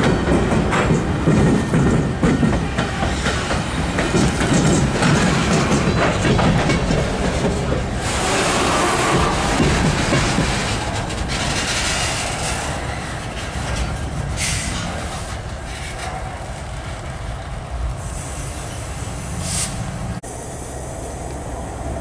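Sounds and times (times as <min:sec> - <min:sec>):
diesel locomotives rumbling: 0:00.0 - 0:22.0
train wheels rolling on rails: 0:00.0 - 0:22.0
wheels squealing: 0:08.0 - 0:16.9.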